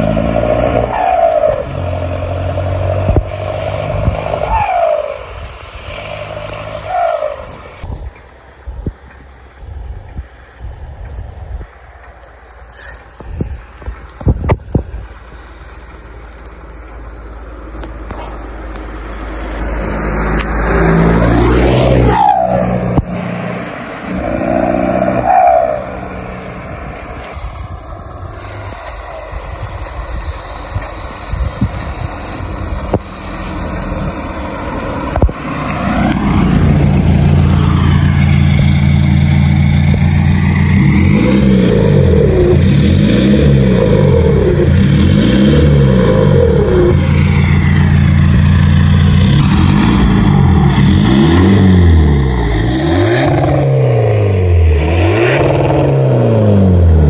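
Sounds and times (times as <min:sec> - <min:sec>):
engine revving: 0:00.0 - 0:07.8, 0:18.7 - 0:27.4, 0:30.8 - 0:57.0
diesel car engine idling: 0:22.5 - 0:42.9, 0:43.7 - 0:51.1.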